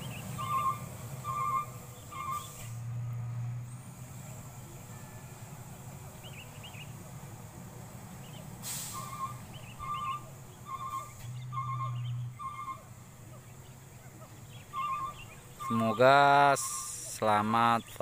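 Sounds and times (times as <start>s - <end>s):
diesel truck engine rumble: 0.0s - 18.0s
short high chirping call: 8.8s - 12.9s, 14.6s - 16.9s.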